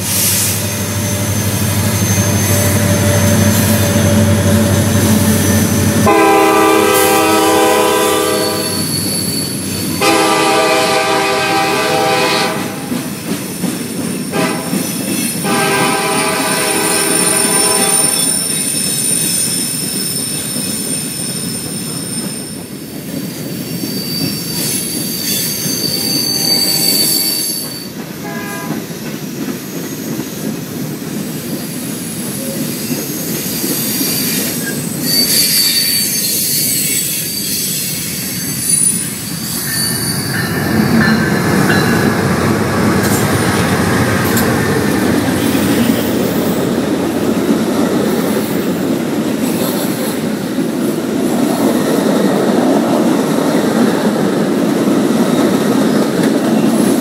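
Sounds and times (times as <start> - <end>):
train wheel squeal: 0.0 - 54.5, 55.1 - 57.0
freight train rumbling past: 0.0 - 57.0
passenger train passing: 0.0 - 57.0
train horn: 6.0 - 9.0, 9.9 - 13.0, 14.3 - 18.4, 26.0 - 27.6, 28.2 - 28.9.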